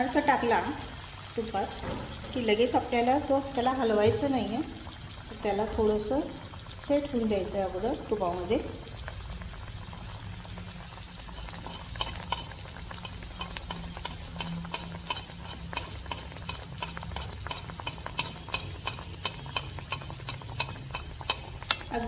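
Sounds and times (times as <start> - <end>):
deep-frying crackling pops: 1.6 - 22.0
spoon moving through oil: 10.8 - 22.0.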